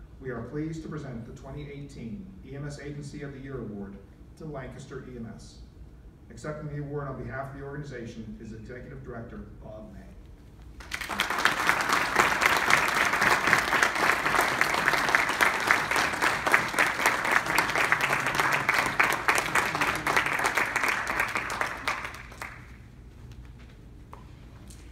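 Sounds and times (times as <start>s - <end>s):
audience applauding: 10.8s - 22.9s.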